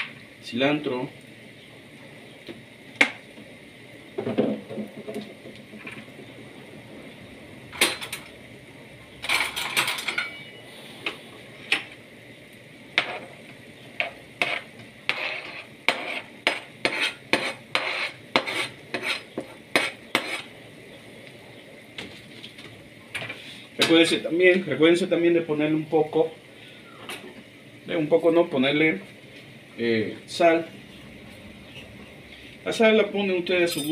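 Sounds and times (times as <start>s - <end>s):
metal utensil scraping a pan: 13.0s - 13.3s, 14.0s - 20.5s.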